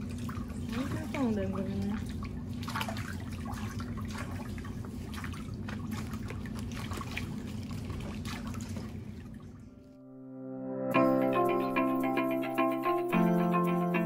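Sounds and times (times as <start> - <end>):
water trickling and splashing: 0.0 - 9.9.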